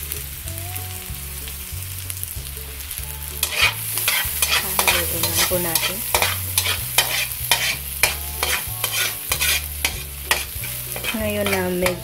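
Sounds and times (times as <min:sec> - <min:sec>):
garlic sizzling in oil: 0:00.0 - 0:12.0
metal spatula scraping pan: 0:03.4 - 0:12.0.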